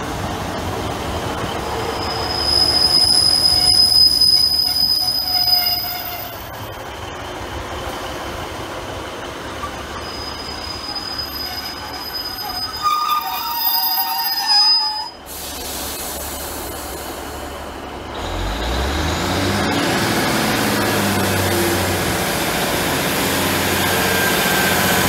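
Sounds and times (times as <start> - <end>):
diesel train engine and wheel rumble: 0.0 - 25.0
high steady wheel squeal: 1.3 - 7.3, 9.4 - 18.5, 23.0 - 25.0.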